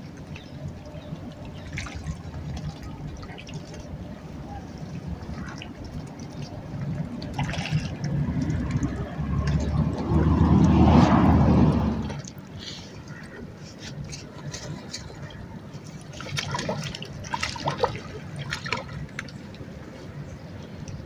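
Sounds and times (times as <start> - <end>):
small sharp splashes: 0.0 - 4.0, 4.8 - 19.8
water lapping at shore: 0.0 - 21.0.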